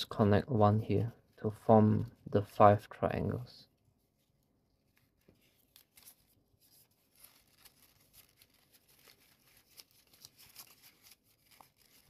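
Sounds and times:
stiff paper rustling and clicking: 4.2 - 12.0.

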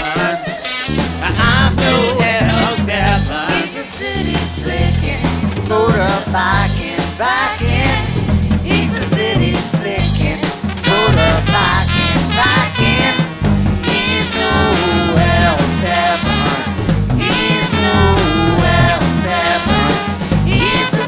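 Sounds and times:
bass line: 0.0 - 21.0
swing band brass horns: 0.0 - 21.0.

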